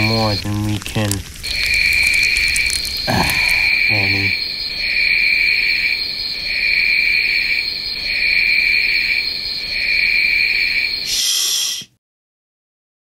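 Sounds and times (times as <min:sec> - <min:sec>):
crickets chirping: 0:00.0 - 0:11.8
steady high insect drone: 0:00.0 - 0:11.8
short hiss: 0:11.1 - 0:11.9.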